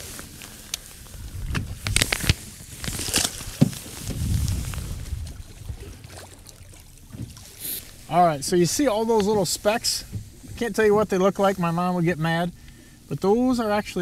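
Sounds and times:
wind and water noise: 0:00.0 - 0:14.0
fish splashing into water: 0:01.6 - 0:08.1.

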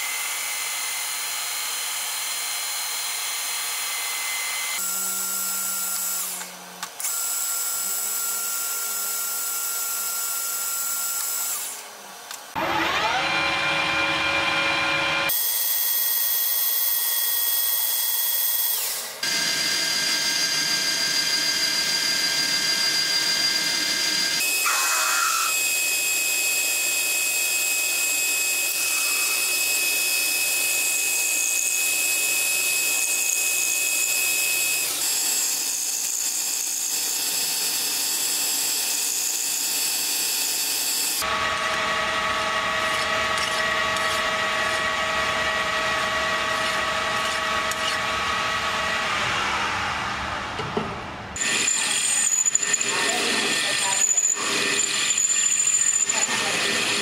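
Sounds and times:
lathe whining: 0:00.0 - 0:16.1, 0:16.8 - 0:57.0
tool cutting metal hiss: 0:24.4 - 0:26.1, 0:28.5 - 0:30.3.

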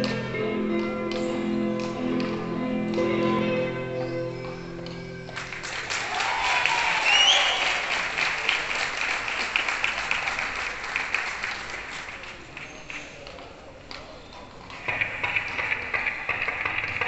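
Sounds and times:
music: 0:00.0 - 0:06.0
crowd applauding: 0:05.3 - 0:13.3, 0:14.8 - 0:17.0
crowd cheering: 0:05.4 - 0:11.9
rising whistle: 0:06.9 - 0:07.8.

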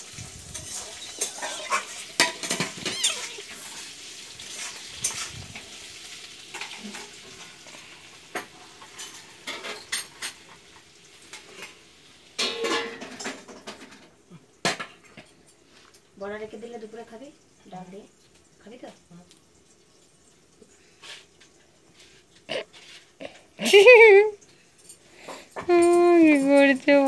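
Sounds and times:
kittens scuffling: 0:00.0 - 0:06.1.

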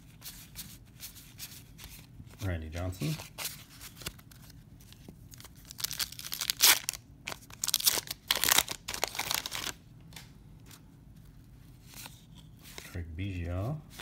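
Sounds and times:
paper wrapper tearing and crinkling: 0:05.3 - 0:09.8.

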